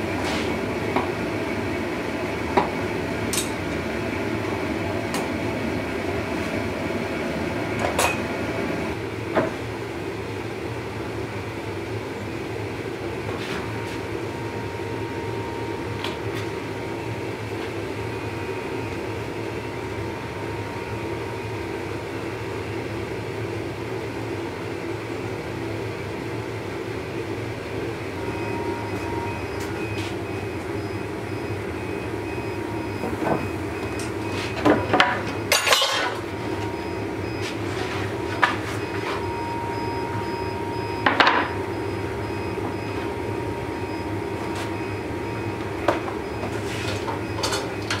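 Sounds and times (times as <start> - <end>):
metallic clanks of tongs: 35.5 - 36.2.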